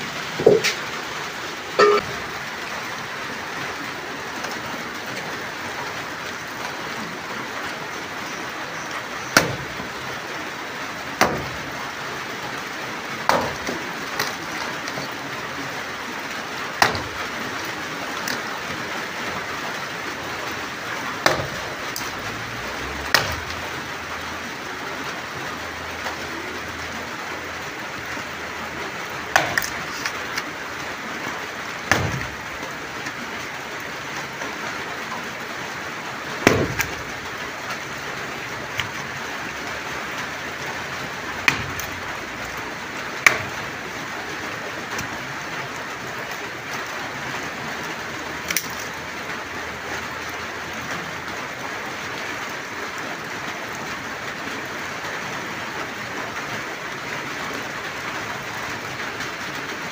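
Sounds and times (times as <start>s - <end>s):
steady rain falling: 0.0s - 59.9s
sticks knocking: 0.4s - 0.9s, 29.3s - 30.4s, 41.4s - 42.0s.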